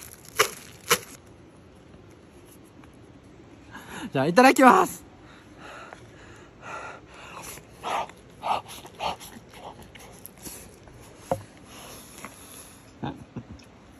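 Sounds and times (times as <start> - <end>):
person chewing: 0.0 - 1.2.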